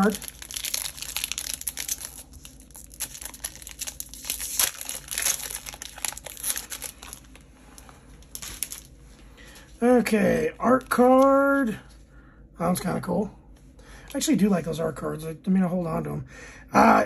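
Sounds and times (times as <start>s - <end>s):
wrapper crinkling and rustling: 0.0s - 9.7s.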